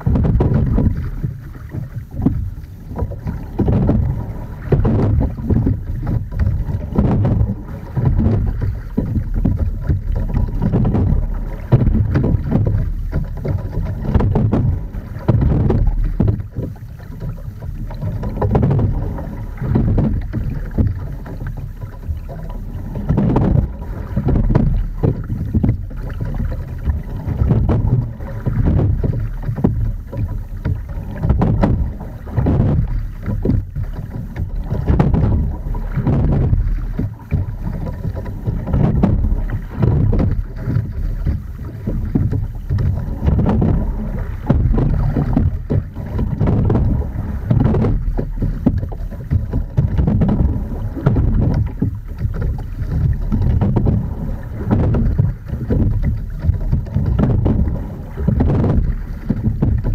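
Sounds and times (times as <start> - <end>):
water rushing along boat hull: 0.0 - 59.9
wind buffeting microphone: 0.0 - 59.9.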